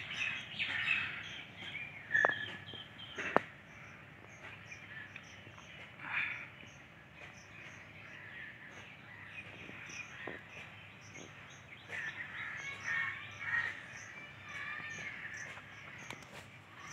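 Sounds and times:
crows cawing: 0:11.9 - 0:16.0.

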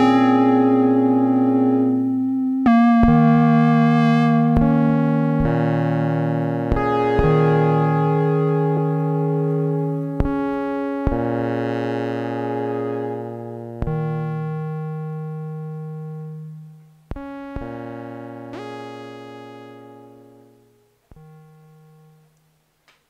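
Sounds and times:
sharp note clicks: 0:00.0 - 0:11.9
layered synthesizer tones: 0:00.0 - 0:22.4
steady low synth note: 0:00.0 - 0:22.4.

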